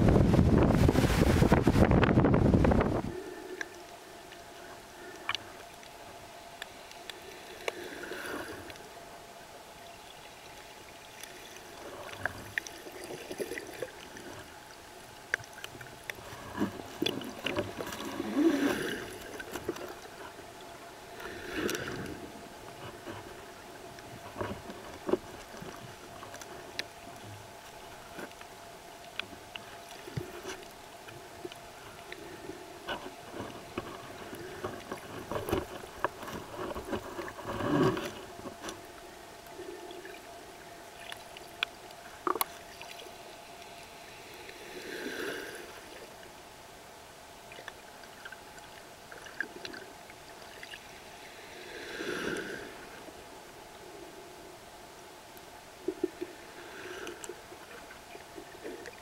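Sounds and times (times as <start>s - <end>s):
waves breaking and churning water: 0.0s - 59.0s
sharp underwater clicks and crackles: 1.4s - 8.9s, 9.7s - 46.5s, 47.4s - 51.3s, 54.9s - 59.0s
underwater hiss of moving water: 7.2s - 8.8s, 17.8s - 19.6s, 21.1s - 22.2s, 43.9s - 46.2s, 50.8s - 54.3s, 56.1s - 57.9s.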